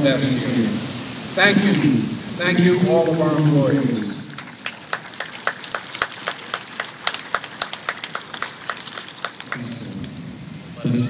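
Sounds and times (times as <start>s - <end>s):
small crowd applauding: 4.1s - 10.2s.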